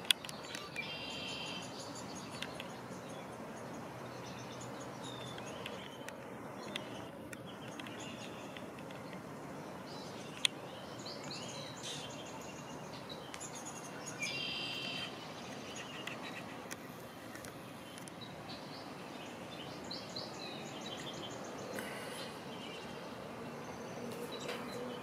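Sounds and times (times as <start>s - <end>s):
outdoor background hiss: 0.0s - 25.0s
small birds chirping and trilling: 0.0s - 25.0s.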